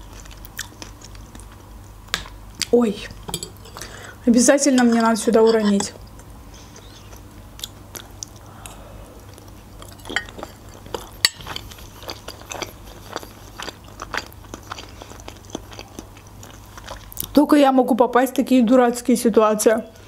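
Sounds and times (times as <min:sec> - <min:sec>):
chewing with mouth clicks: 0:00.0 - 0:02.7, 0:06.0 - 0:17.4.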